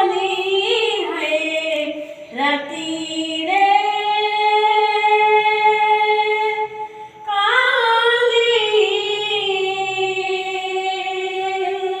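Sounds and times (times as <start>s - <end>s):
boy singing unaccompanied: 7.3s - 12.0s.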